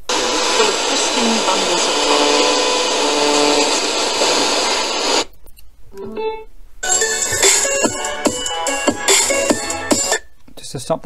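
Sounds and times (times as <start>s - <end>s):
radio static hissing: 0.0s - 5.3s.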